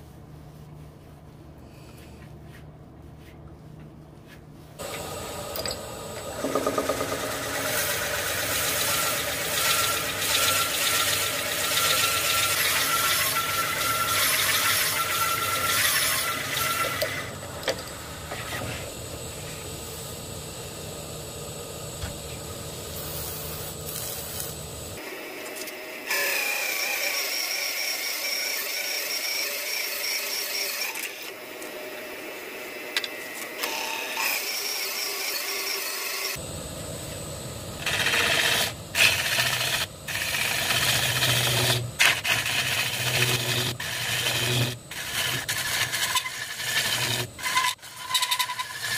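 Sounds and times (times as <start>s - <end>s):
lathe motor hum: 4.8s - 19.9s, 36.4s - 47.8s
lathe tool scraping wood: 6.3s - 17.4s, 37.8s - 48.9s.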